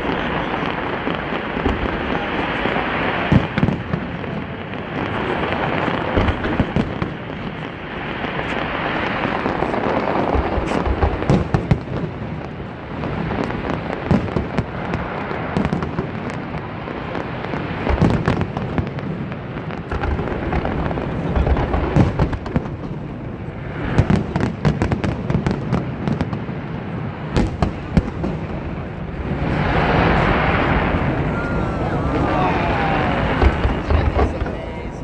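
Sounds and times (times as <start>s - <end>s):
fireworks bursting: 0.0s - 35.0s
fireworks crackling: 0.0s - 35.0s.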